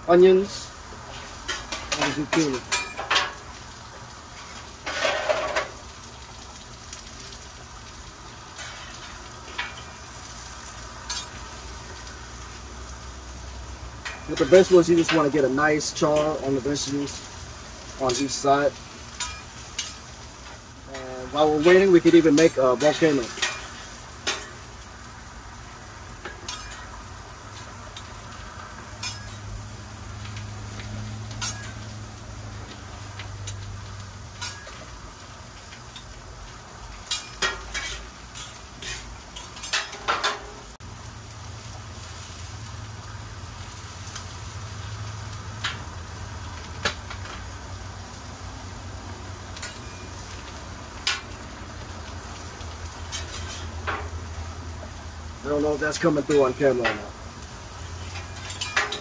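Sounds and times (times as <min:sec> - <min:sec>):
vegetables sizzling on a griddle: 0:00.0 - 0:59.0
metal spatula scraping steel: 0:08.6 - 0:09.9, 0:26.3 - 0:26.9, 0:29.0 - 0:29.5, 0:31.4 - 0:31.9, 0:34.4 - 0:34.9, 0:37.1 - 0:40.4, 0:53.1 - 0:53.9, 0:58.0 - 0:59.0.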